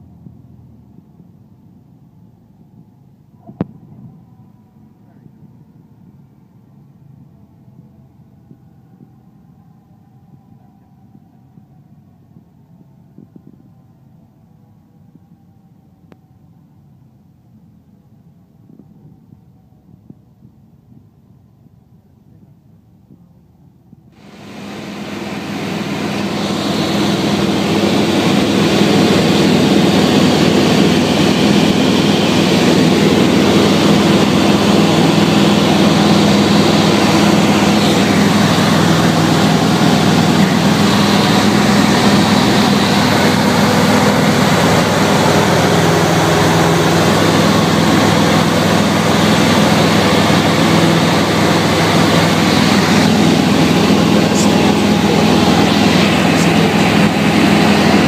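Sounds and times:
airplane engine and propeller drone: 0.0s - 58.0s
hiss of airflow: 24.2s - 58.0s.

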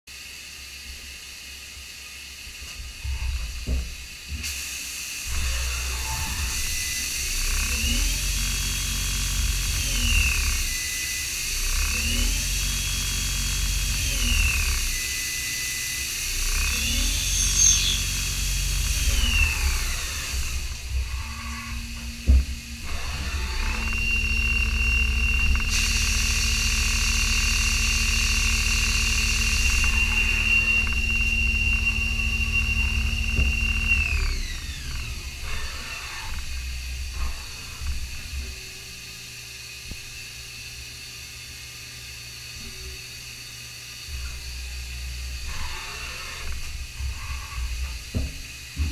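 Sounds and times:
hiss: 4.4s - 7.4s, 25.6s - 29.5s
lathe whine rising and falling: 4.7s - 48.8s
low machine hum: 5.3s - 48.9s.

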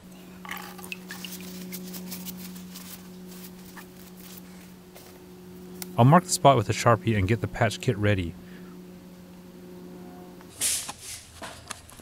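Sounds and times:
steady low hum: 0.0s - 12.0s
water dripping and splashing in basin: 0.5s - 1.8s.

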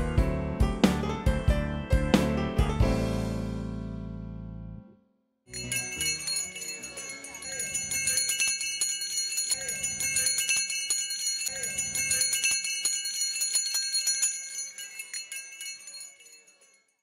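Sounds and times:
jingling bells shaken: 5.5s - 17.0s.

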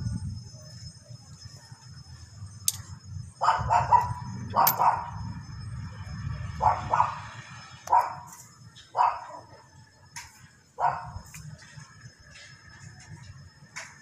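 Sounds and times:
steady low hum: 0.0s - 14.0s
dog barking: 3.4s - 5.1s, 6.6s - 7.2s, 9.0s - 9.5s, 10.8s - 11.1s.

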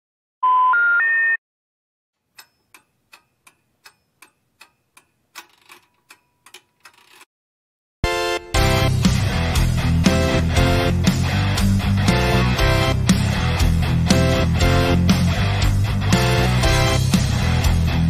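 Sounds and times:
clock ticking: 2.2s - 7.3s.

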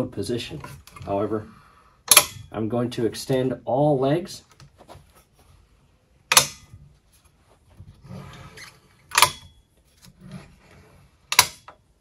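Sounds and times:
metal leg locking clicks: 2.1s - 2.5s, 6.3s - 6.7s, 9.1s - 9.6s, 11.3s - 11.8s
soft metal scrape: 7.1s - 9.1s, 9.9s - 11.2s.

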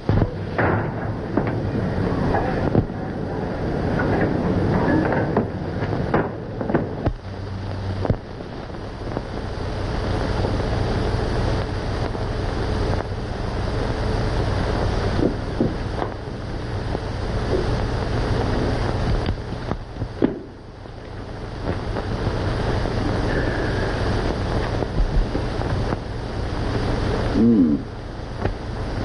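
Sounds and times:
film soundtrack hiss and hum: 0.0s - 29.0s
sharp clicks and knocks: 4.0s - 7.2s.

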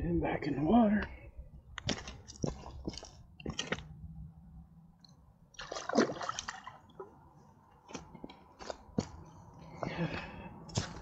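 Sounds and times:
water splashing: 5.6s - 7.1s.

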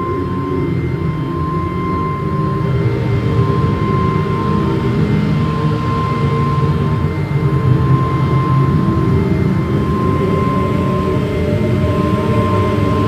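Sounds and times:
low rumbling drone: 0.0s - 13.0s.

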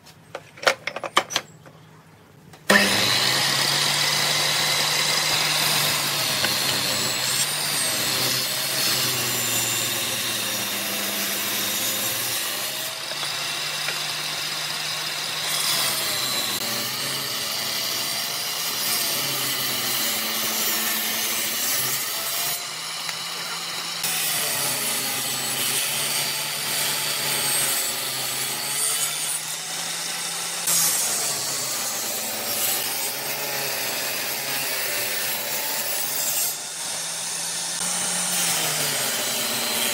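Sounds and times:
table saw ripping wood: 2.6s - 39.9s.

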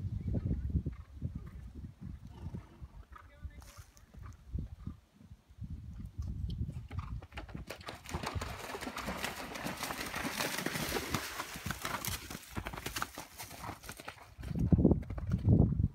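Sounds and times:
horse hoofbeats: 6.7s - 15.9s
hooves splashing in water: 7.7s - 14.2s.

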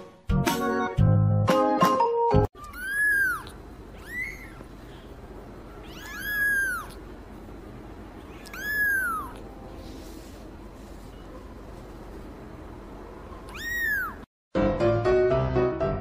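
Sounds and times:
kitten mewing: 2.6s - 4.7s, 5.8s - 7.1s, 8.2s - 9.5s, 13.4s - 14.3s.

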